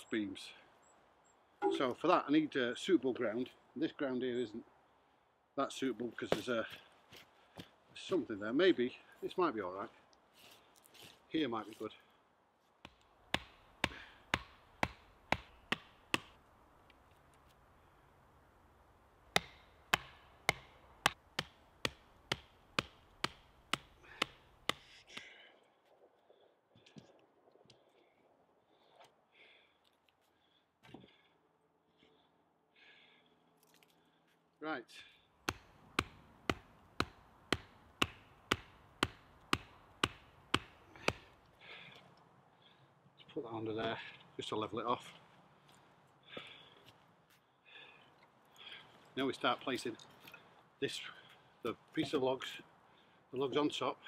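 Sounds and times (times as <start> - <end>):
axe striking wooden stakes: 12.8 - 16.4, 19.3 - 25.3, 35.4 - 41.4.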